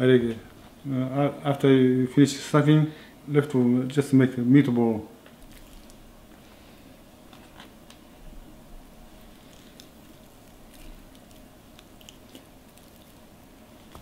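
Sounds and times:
low room hum: 0.0 - 14.0
faint squishes of food: 5.3 - 7.7, 9.1 - 14.0.

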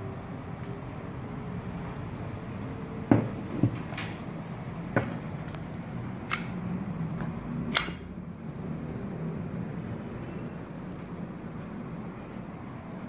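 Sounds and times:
air pistol parts clicking: 5.4 - 8.1.

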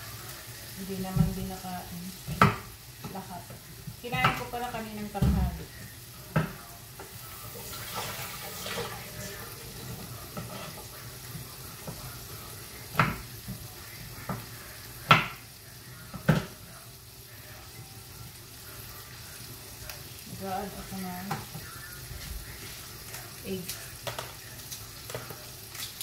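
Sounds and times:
tap water running into sink: 7.6 - 9.4.

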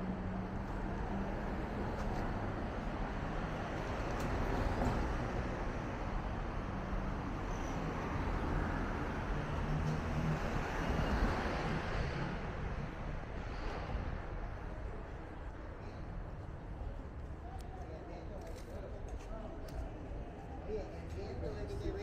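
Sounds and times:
cars driving past: 0.0 - 15.4.

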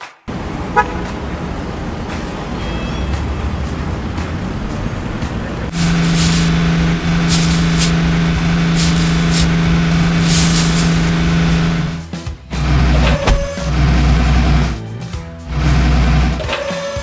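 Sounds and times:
heavy vehicle engine running: 0.3 - 17.0
short hisses: 5.7 - 11.9.

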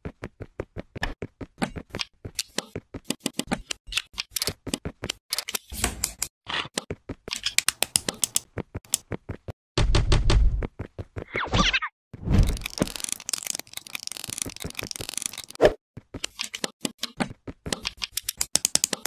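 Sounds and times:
plastic bricks clicking together: 12.4 - 15.6, 16.2 - 19.0.

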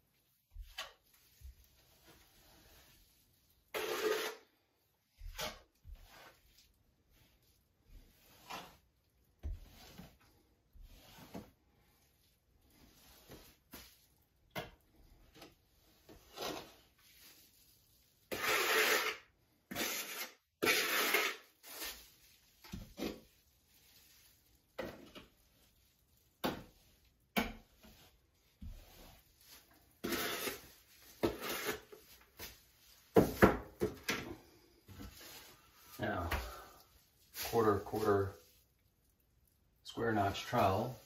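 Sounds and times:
trowel scraping mortar on wall: 0.5 - 4.6, 5.2 - 6.8, 7.9 - 11.6, 12.8 - 23.4, 26.4 - 34.3
trowel knocking plastic bucket: 33.1 - 34.3.

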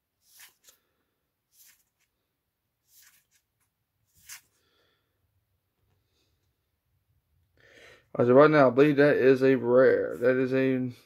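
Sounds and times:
trading cards sliding: 0.2 - 2.2, 2.8 - 4.6.

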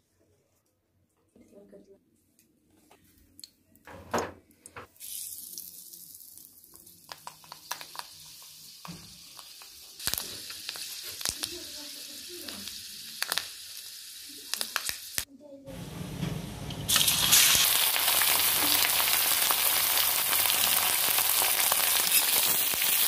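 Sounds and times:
wok sizzling with crackles: 5.0 - 23.0.

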